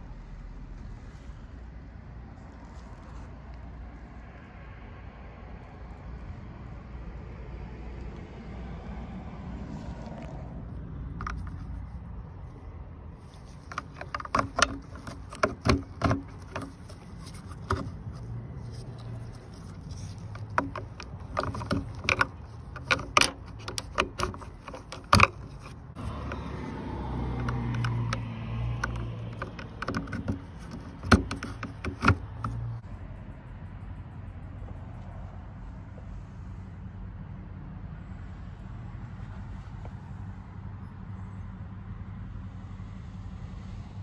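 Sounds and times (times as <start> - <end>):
plastic clicks and knocks: 13.7 - 16.8, 20.3 - 25.8, 27.4 - 32.6.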